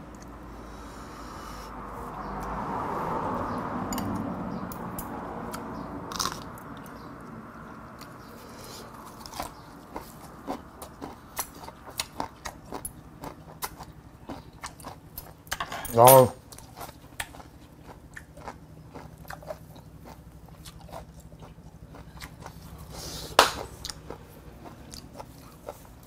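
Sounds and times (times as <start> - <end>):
crunchy chewing: 5.5 - 15.6, 16.4 - 26.0.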